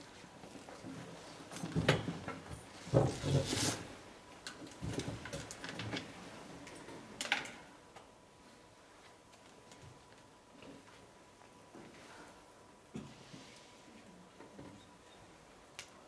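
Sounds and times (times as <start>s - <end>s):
knocks and rustles: 1.5s - 3.9s.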